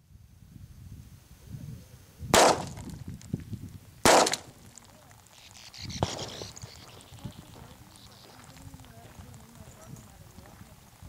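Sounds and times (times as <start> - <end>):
pistol shots: 2.4 - 3.0, 4.0 - 4.8, 6.0 - 6.4.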